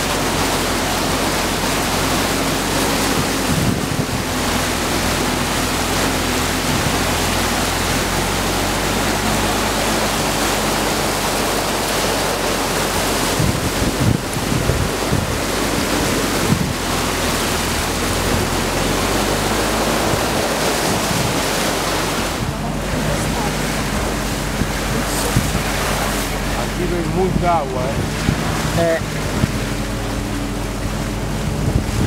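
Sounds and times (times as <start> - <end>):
boat engine droning: 0.0 - 32.0
water rushing and spraying: 0.0 - 32.0
wind on microphone: 1.1 - 32.0
hull bumps: 8.0 - 32.0.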